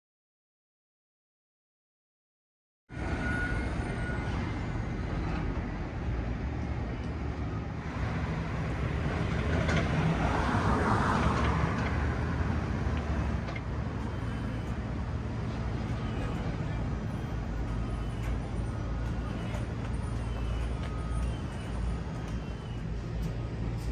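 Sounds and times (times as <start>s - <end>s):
street traffic noise: 2.9s - 23.9s
vehicle passing: 7.8s - 17.9s.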